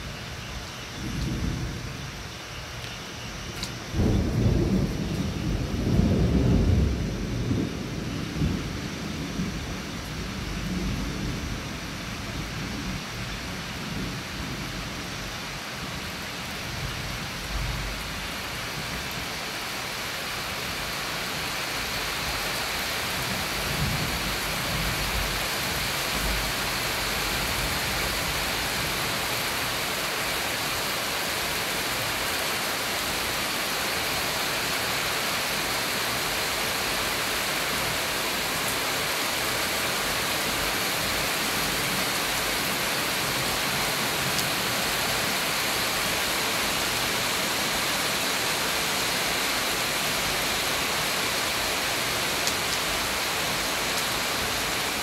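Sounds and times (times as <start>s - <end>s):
heavy rain falling: 0.0s - 55.0s
thunder rumbling: 0.9s - 2.3s, 3.4s - 15.0s.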